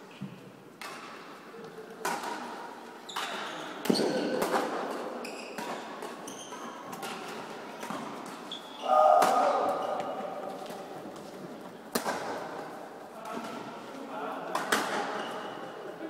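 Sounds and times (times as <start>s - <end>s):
shoes squeaking on court floor: 3.0s - 9.0s, 9.6s - 12.8s, 14.9s - 15.8s
rackets striking shuttlecock: 11.9s - 12.6s.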